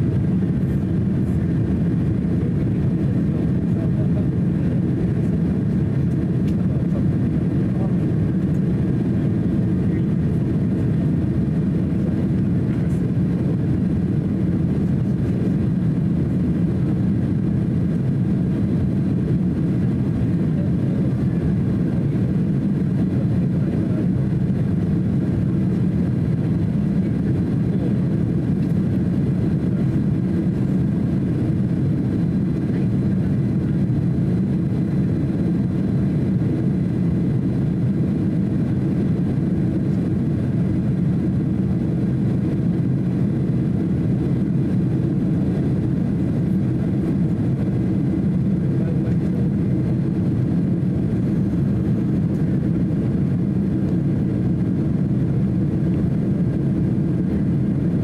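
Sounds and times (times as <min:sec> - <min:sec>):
airliner cabin engine rumble: 0:00.0 - 0:58.0.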